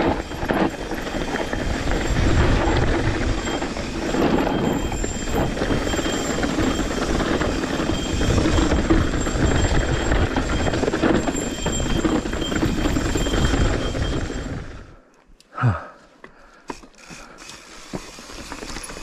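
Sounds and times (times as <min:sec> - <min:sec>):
bike tyres rumbling on rough trail: 0:00.0 - 0:15.0, 0:15.8 - 0:19.0
wind buffeting microphone: 0:00.0 - 0:15.0.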